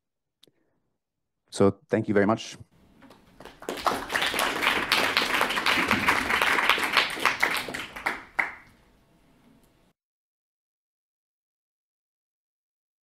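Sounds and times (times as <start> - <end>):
audience applauding: 3.1 - 8.8.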